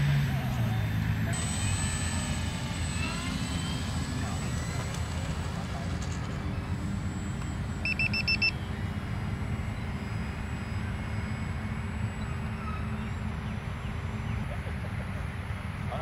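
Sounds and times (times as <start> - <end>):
faint steady hum: 0.0 - 16.0
low outdoor rumble: 0.0 - 16.0
high electronic beeps: 5.4 - 14.0.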